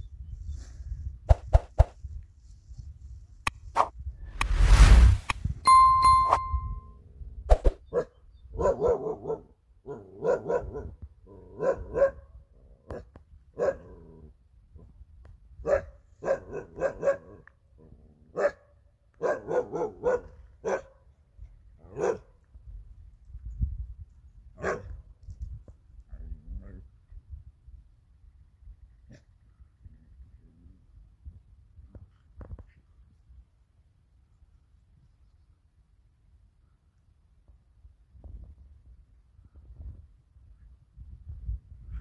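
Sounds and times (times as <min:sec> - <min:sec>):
dog barking: 0:07.9 - 0:12.3, 0:12.9 - 0:14.0, 0:15.6 - 0:17.5, 0:18.3 - 0:21.0, 0:21.9 - 0:22.3, 0:24.6 - 0:24.9.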